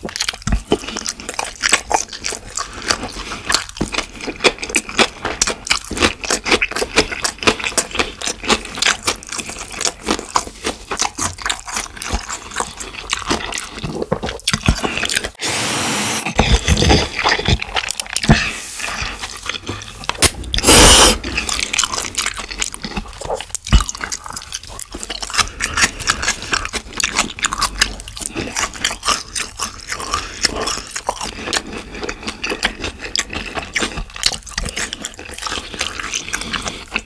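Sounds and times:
wet chewing: 0.0 - 15.4, 16.3 - 37.0
slurping noodles: 14.7 - 32.4.

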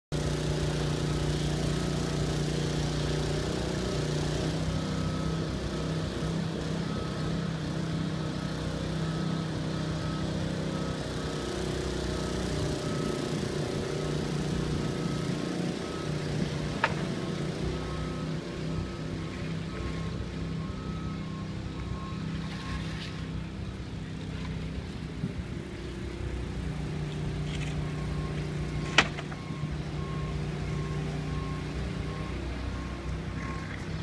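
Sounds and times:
water pump engine droning: 0.1 - 34.0.

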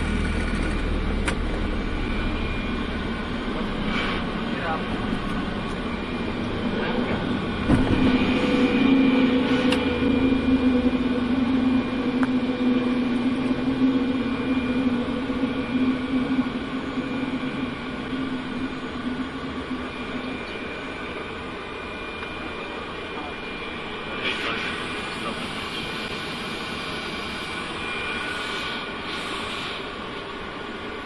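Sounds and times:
humming tone: 0.0 - 30.5
jet engine and airflow noise: 0.0 - 31.0.

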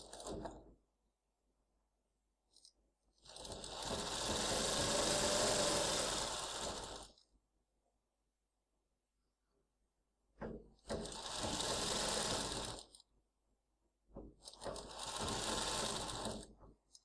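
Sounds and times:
sewing machine stitching: 0.0 - 0.7, 2.5 - 7.3, 10.4 - 13.1, 14.2 - 17.0.

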